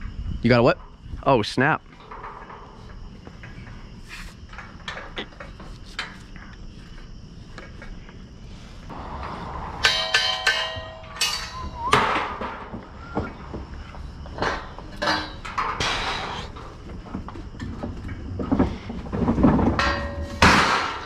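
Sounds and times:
footsteps on metal deck: 0.0s - 20.4s
ringing metallic clangs: 8.9s - 16.3s, 19.6s - 21.0s.

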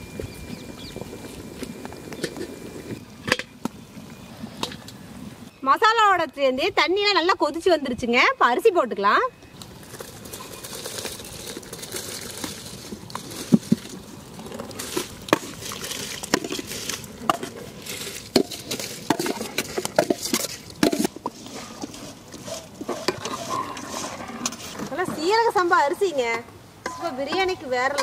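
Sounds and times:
metal ladle clinking and scraping pot: 14.8s - 26.2s.

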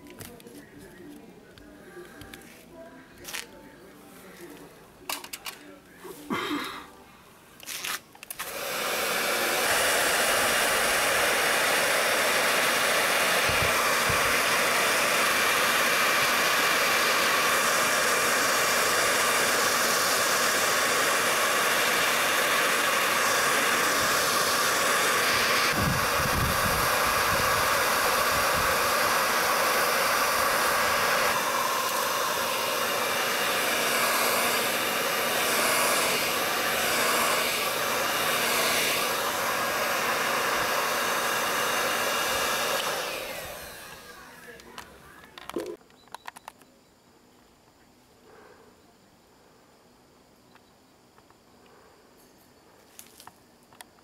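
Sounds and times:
hot air gun blowing: 7.6s - 44.7s.

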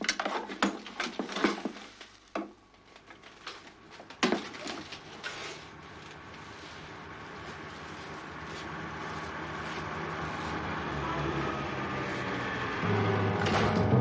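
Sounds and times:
gear clattering on wooden boards: 0.0s - 5.4s.

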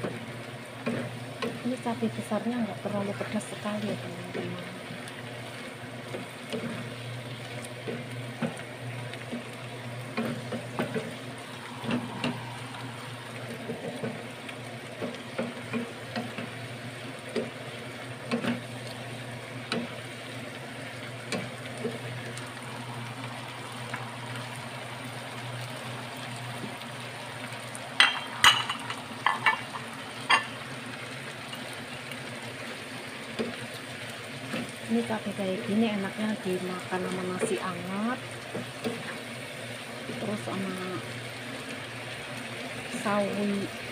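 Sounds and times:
chilies sizzling in a pan: 0.0s - 43.9s
utensil clacking against pan: 28.0s - 30.6s.

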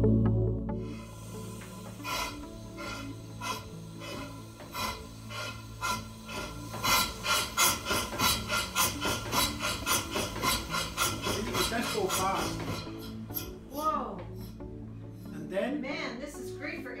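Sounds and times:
model steam engine chuffing: 1.4s - 13.5s.

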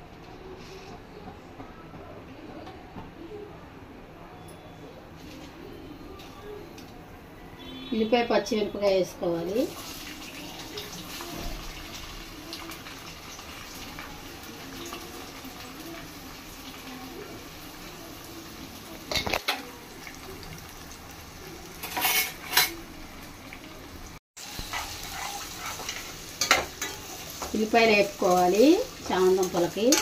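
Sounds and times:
onions sizzling in oil: 8.0s - 30.0s
metal spatula scraping a pan: 21.8s - 22.8s, 24.5s - 27.5s.

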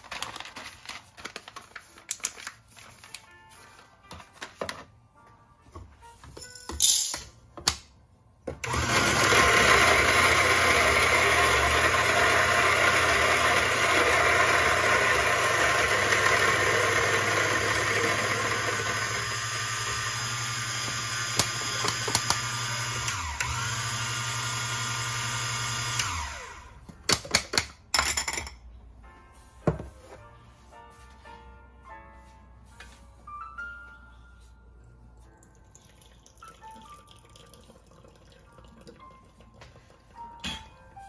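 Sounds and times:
coffee grinder motor grinding: 8.6s - 26.8s.

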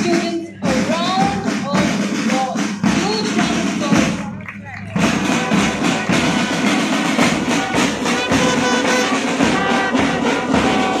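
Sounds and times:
marching band playing: 0.0s - 11.0s
snare and bass drums: 0.0s - 11.0s
brass horns playing a tune: 5.2s - 11.0s.

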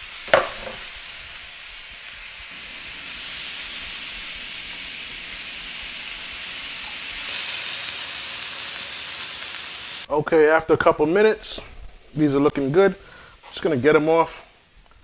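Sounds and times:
meat sizzling on a grill pan: 0.0s - 10.1s.

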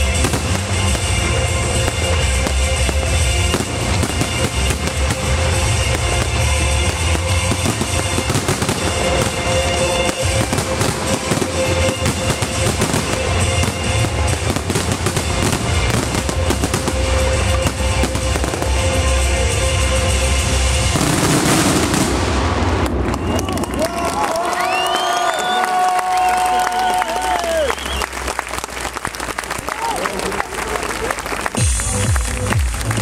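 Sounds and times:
music with heavy bass beat: 0.0s - 22.1s, 31.6s - 33.0s
fireworks bursting and crackling: 0.0s - 26.6s.

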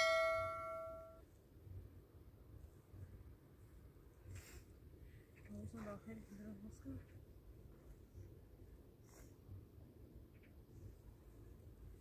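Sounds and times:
faint low outdoor rumble: 0.0s - 12.0s
soft rustle: 2.5s - 12.0s.

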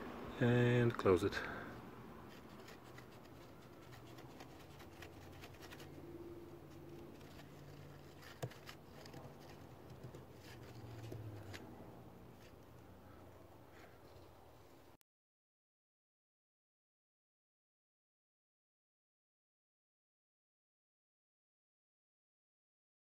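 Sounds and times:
plastic cap clicks and scrapes: 6.7s - 11.7s.

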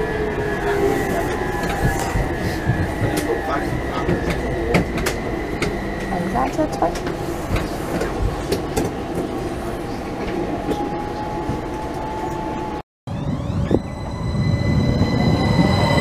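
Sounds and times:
clicks of train wheels: 1.6s - 9.3s.

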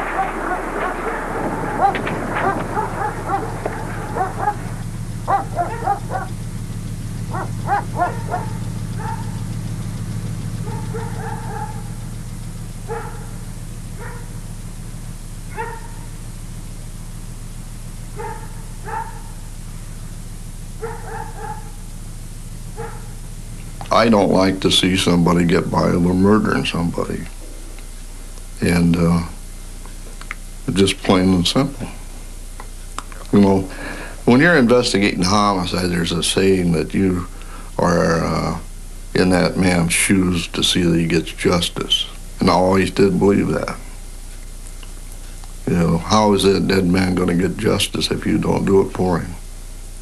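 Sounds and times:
steady low hum: 0.0s - 50.0s
dog barking: 0.1s - 6.4s, 7.3s - 9.4s, 10.6s - 12.0s, 12.8s - 13.4s, 14.0s - 14.4s, 15.5s - 16.1s, 18.2s - 19.4s, 20.8s - 21.8s, 22.7s - 23.2s.

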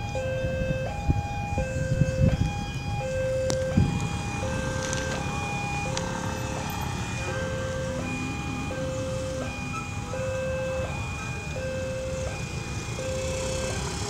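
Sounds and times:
level crossing alarm two-tone: 0.0s - 14.0s
road and wind noise: 0.0s - 14.0s.

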